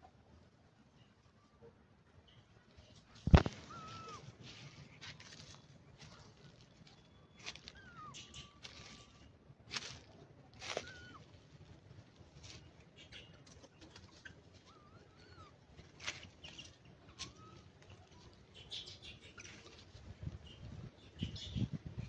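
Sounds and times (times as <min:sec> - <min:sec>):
monkeys squeaking: 0:03.5 - 0:04.2, 0:07.5 - 0:09.2, 0:10.7 - 0:11.2, 0:13.0 - 0:15.6, 0:16.4 - 0:19.8.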